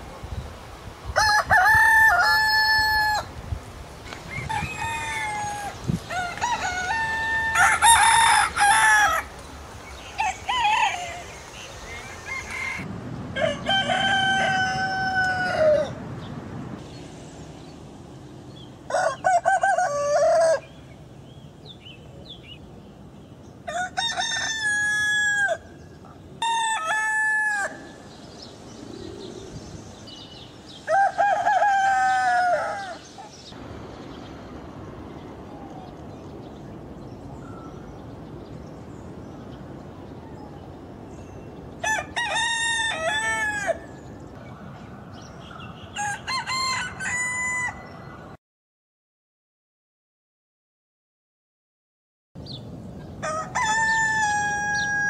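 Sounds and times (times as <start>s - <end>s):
roosters crowing: 1.1s - 3.3s, 4.0s - 16.0s, 18.9s - 20.8s, 23.6s - 28.2s, 30.0s - 33.6s, 41.8s - 44.3s, 45.7s - 48.4s, 53.2s - 55.0s.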